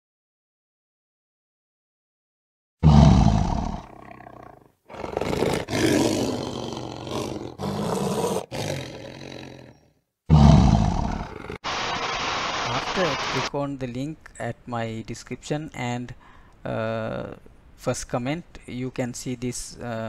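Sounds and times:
lion roaring: 0:02.8 - 0:11.6.

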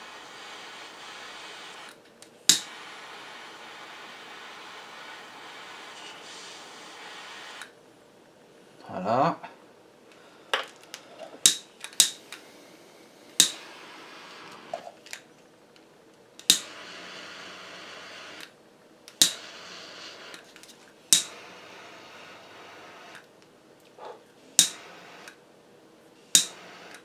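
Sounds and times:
torch gas hissing: 0:00.0 - 0:07.8, 0:11.0 - 0:15.0, 0:16.4 - 0:18.6, 0:19.2 - 0:20.4, 0:21.1 - 0:23.3, 0:24.0 - 0:25.4, 0:26.2 - 0:27.0
torch igniter clicks: 0:00.8 - 0:05.9, 0:07.4 - 0:07.8, 0:10.9 - 0:12.5, 0:13.3 - 0:17.2, 0:17.8 - 0:21.8, 0:24.6 - 0:25.4, 0:26.3 - 0:27.0.

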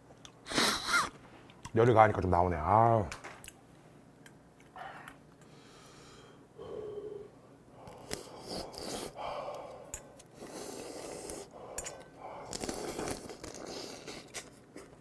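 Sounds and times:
person slurping noodles: 0:08.0 - 0:09.2, 0:10.4 - 0:11.5, 0:12.4 - 0:14.5.

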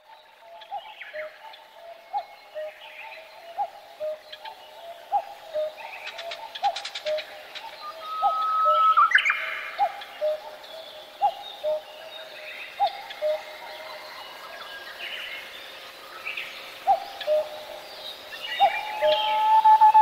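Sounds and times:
low hooting bird calls: 0:00.4 - 0:20.0
high bird whistles and chirps: 0:18.6 - 0:20.0.

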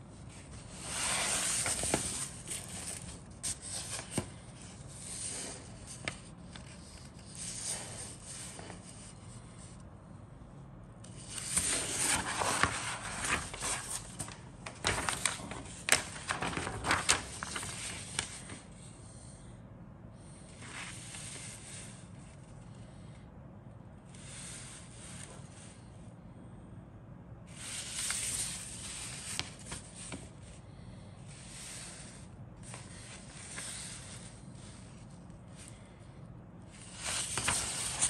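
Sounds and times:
paper rustling and crinkling: 0:00.2 - 0:09.3, 0:11.1 - 0:18.7, 0:27.6 - 0:30.5, 0:36.8 - 0:38.0.

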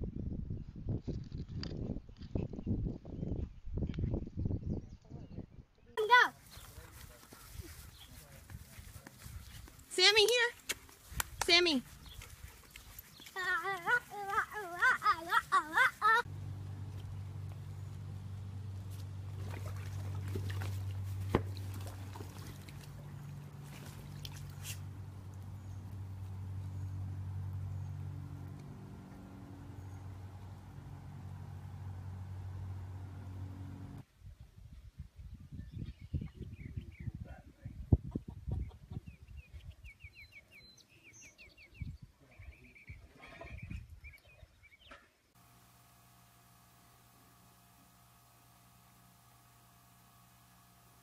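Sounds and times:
steady low hum: 0:11.0 - 0:34.0, 0:45.4 - 0:51.0
water sloshing and trickling: 0:18.6 - 0:28.3.

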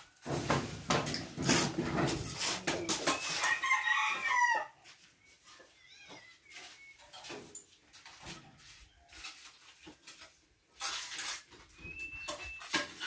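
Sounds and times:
close rustling and knocks: 0:00.1 - 0:03.6
rooster crowing: 0:03.4 - 0:04.8.

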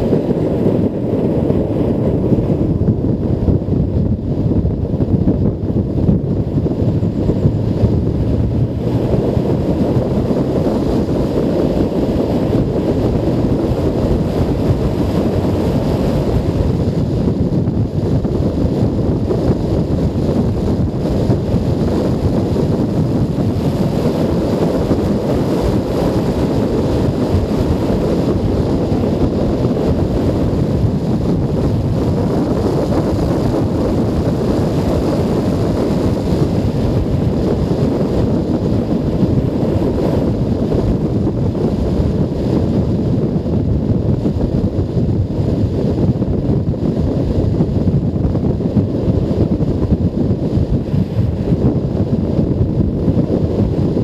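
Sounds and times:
motorcycle engine: 0:00.0 - 0:31.9
road noise: 0:00.0 - 0:54.0
wind buffeting microphone: 0:00.0 - 0:54.0.

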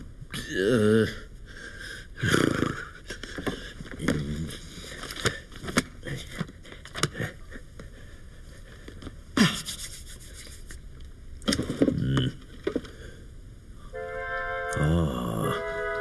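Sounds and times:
cartoon clicks and scrapes: 0:09.5 - 0:10.8.

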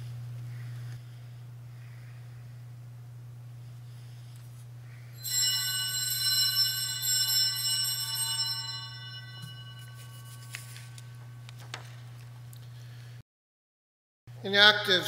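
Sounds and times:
altar bells ringing: 0:05.2 - 0:11.6.

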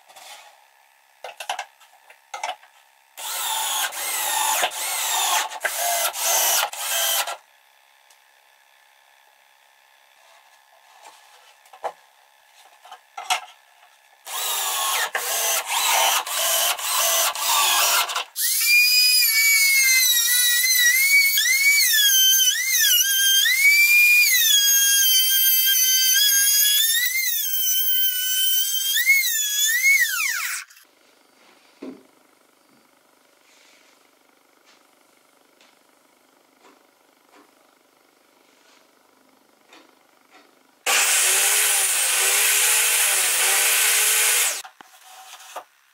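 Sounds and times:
harsh power tool noise: 0:03.2 - 0:07.4, 0:14.2 - 0:30.9, 0:40.9 - 0:44.6
trim router whining: 0:03.2 - 0:07.4, 0:14.3 - 0:30.7, 0:40.9 - 0:44.6.

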